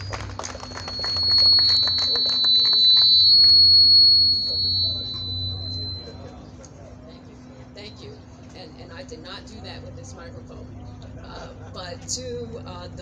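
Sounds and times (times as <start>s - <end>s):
people clapping: 0.0s - 6.0s
microphone feedback squeal: 0.0s - 6.6s.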